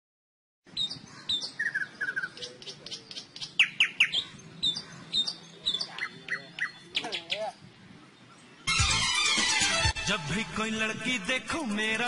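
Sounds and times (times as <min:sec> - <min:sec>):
songbirds chirping: 0:00.7 - 0:08.8.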